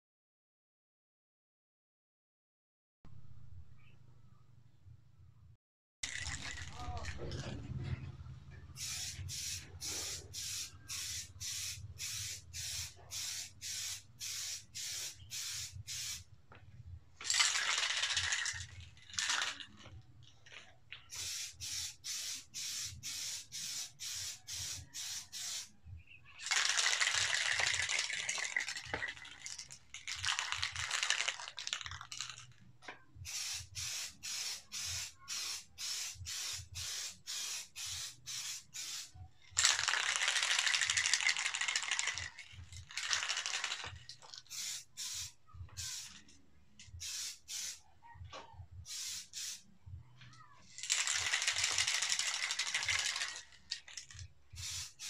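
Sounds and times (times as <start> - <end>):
spray can ball rattling: 6.0 - 7.6, 8.8 - 16.2, 17.2 - 25.7, 26.4 - 32.6, 33.2 - 47.8, 48.8 - 49.6, 50.7 - 55.0
spray paint hissing: 8.8 - 16.3, 21.1 - 25.7, 26.4 - 32.4, 33.2 - 47.8, 48.8 - 49.7, 50.8 - 55.0.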